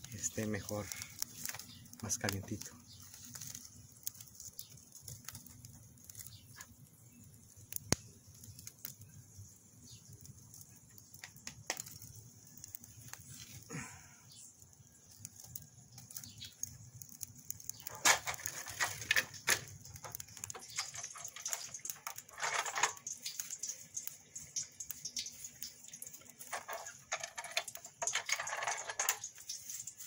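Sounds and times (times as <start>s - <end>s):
plastic sheets crinkling: 17.7s - 24.0s, 25.1s - 30.0s.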